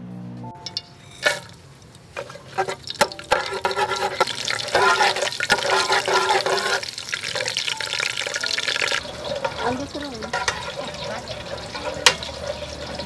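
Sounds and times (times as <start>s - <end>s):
metal ladle clinking against pot: 0.6s - 1.6s, 2.2s - 13.0s
spices sizzling in hot oil: 0.7s - 13.0s.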